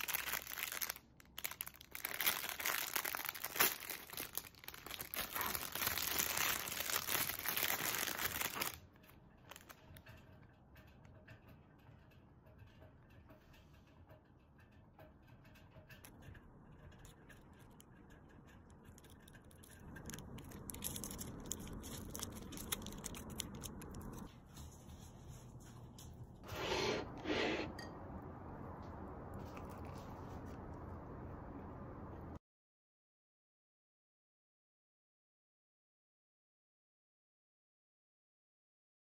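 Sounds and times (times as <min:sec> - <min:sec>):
plastic sachet crinkling: 0:00.0 - 0:09.8, 0:18.8 - 0:24.3.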